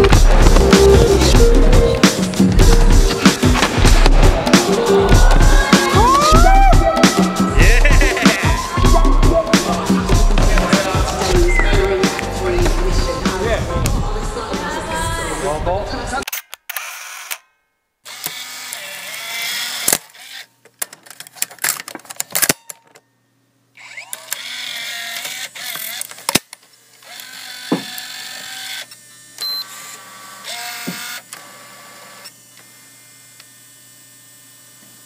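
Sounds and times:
noisy background: 0.0 - 16.2.

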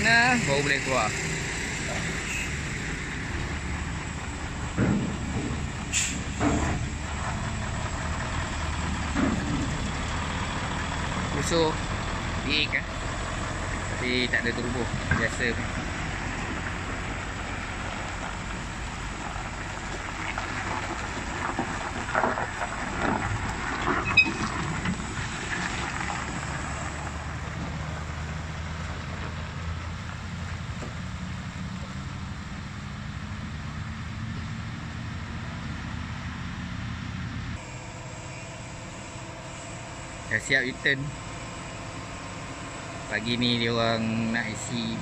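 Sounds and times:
heavy diesel engine droning: 0.0 - 45.0
short sharp squeak: 2.2 - 2.6, 24.0 - 24.6
trailer knocks and rattles: 2.8 - 28.1.

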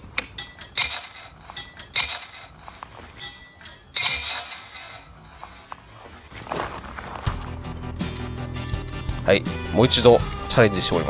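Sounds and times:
light metallic clinks: 0.2 - 5.6
metal scraping on gravel: 0.4 - 8.3.

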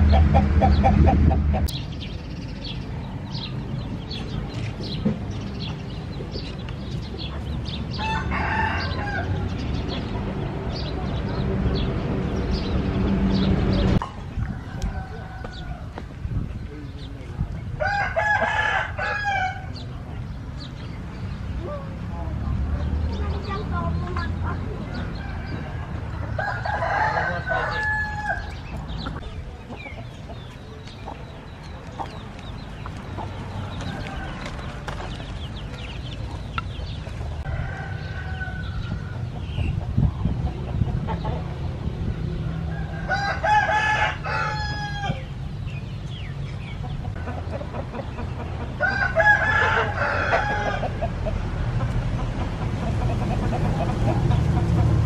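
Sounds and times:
rooster crowing: 8.0 - 9.4, 14.6 - 16.0, 17.8 - 19.7, 25.2 - 28.5, 37.4 - 39.2, 42.6 - 45.2, 48.8 - 51.0.

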